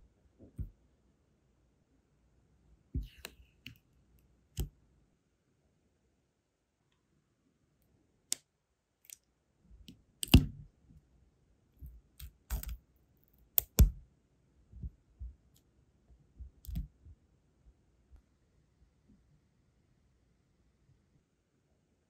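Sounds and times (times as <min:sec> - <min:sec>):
fingertip handling noise: 0:11.8 - 0:14.0.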